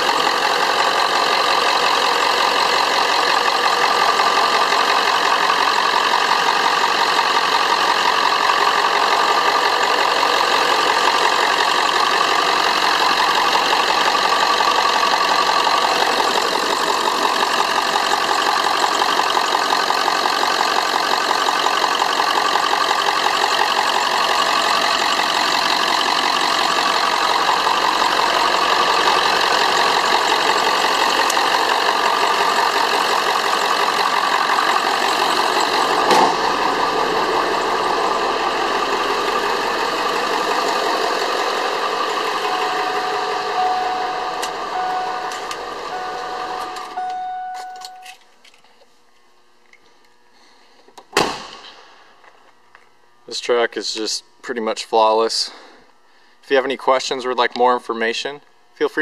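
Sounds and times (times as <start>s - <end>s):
diesel engine idling: 0.0s - 48.2s
chime beeping: 42.0s - 48.2s
thump: 51.1s - 51.8s.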